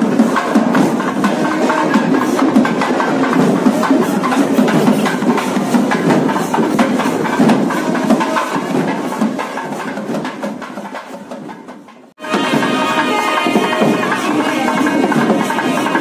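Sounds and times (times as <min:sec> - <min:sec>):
procession band playing: 0:00.0 - 0:08.8, 0:12.2 - 0:16.0
rapid barrel drum strokes: 0:00.0 - 0:16.0.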